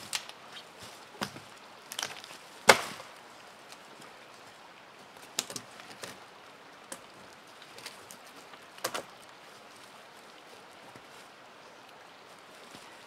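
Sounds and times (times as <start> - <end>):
steady outdoor hiss: 0.0 - 13.0
dead wood knocking and cracking: 2.0 - 3.1.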